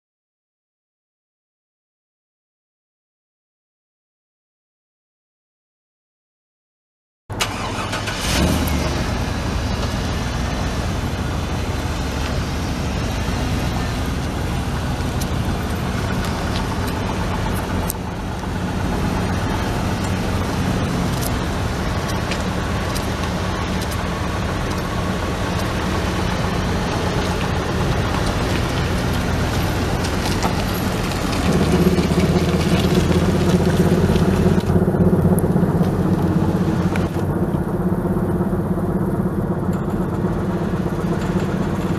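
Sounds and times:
car engine idling: 7.3 - 41.9.

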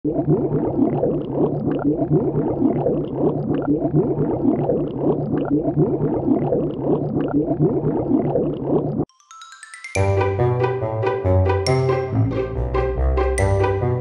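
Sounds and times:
bubbles gurgling underwater: 0.0 - 9.1.

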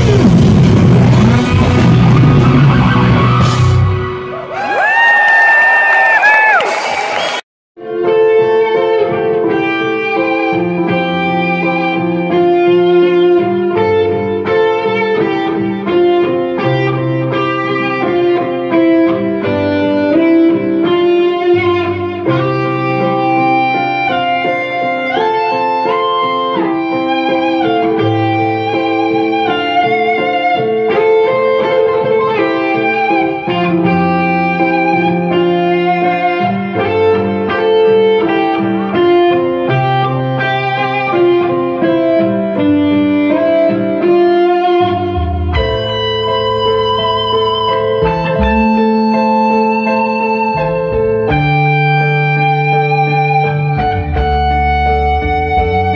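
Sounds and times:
low bass notes: 0.0 - 4.2, 42.4 - 55.9
lead electric guitar melody: 0.0 - 4.5, 7.8 - 55.9
keyboard backing: 7.8 - 55.9.

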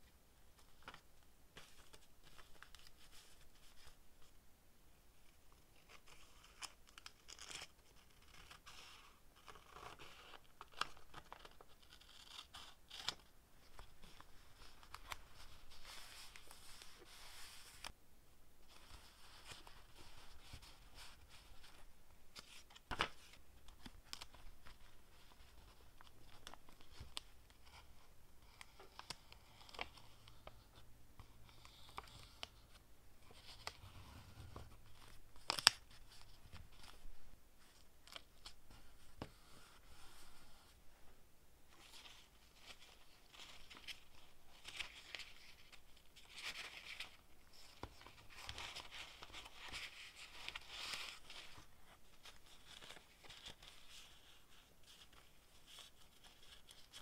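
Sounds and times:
paper rustling: 18.7 - 27.9, 31.5 - 40.7, 41.7 - 57.0.

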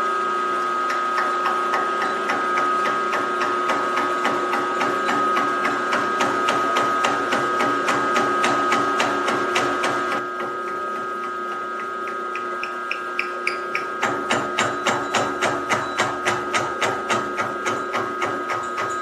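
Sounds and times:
milling machine motor whine: 0.0 - 19.0
saw blade ticking through metal: 0.9 - 19.0.

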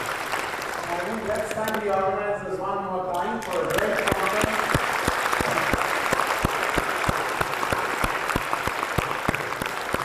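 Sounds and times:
audience applauding: 0.0 - 2.0, 3.4 - 10.0
sharp single person's claps: 3.7 - 10.0.

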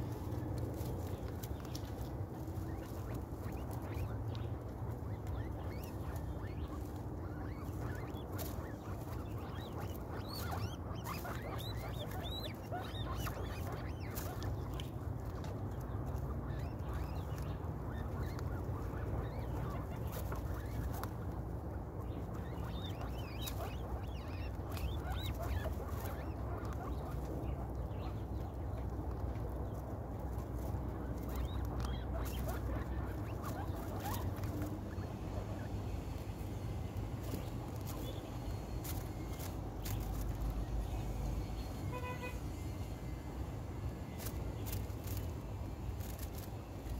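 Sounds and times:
shuffling in hay: 0.0 - 16.2
guinea pigs crunching pellets: 0.0 - 41.9, 43.5 - 46.9
steady low hum: 0.0 - 46.9.

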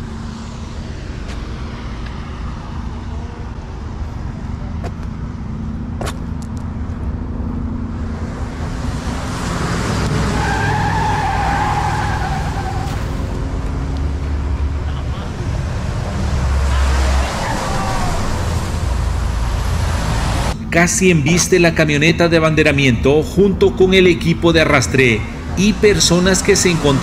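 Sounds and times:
engine running steadily: 0.0 - 10.4, 12.6 - 27.0
truck passing at speed: 0.0 - 20.8, 23.2 - 27.0
highway traffic: 0.0 - 27.0
tyre squeal: 10.3 - 13.3.

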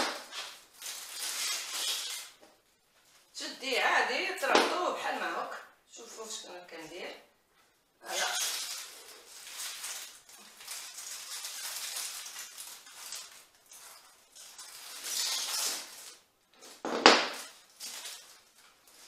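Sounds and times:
foliage rustling and crackling: 0.2 - 3.4, 8.0 - 16.7, 17.4 - 19.0.

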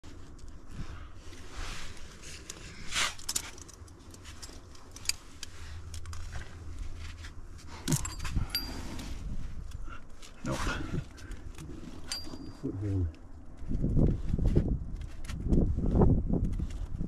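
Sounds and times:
metal climbing gear jangling: 2.2 - 14.1.

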